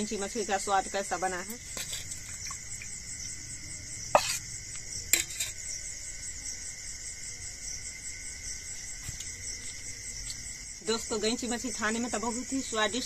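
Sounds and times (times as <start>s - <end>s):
crickets chirring: 0.0s - 13.0s
spoon clinking against steel pot: 5.1s - 5.6s.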